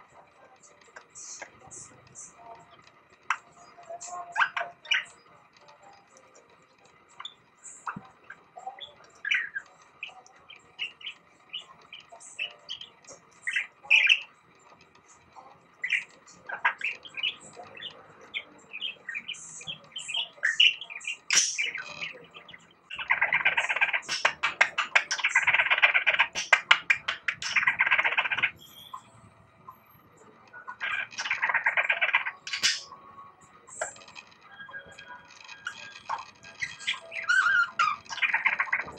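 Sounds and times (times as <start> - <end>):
budgerigar chattering warble: 3.3 - 5.2, 7.1 - 14.3, 15.8 - 29.1, 30.6 - 33.0, 35.0 - 38.9
budgerigar chirps and whistles: 7.2 - 14.3, 15.8 - 29.2, 30.6 - 33.0, 33.7 - 38.9.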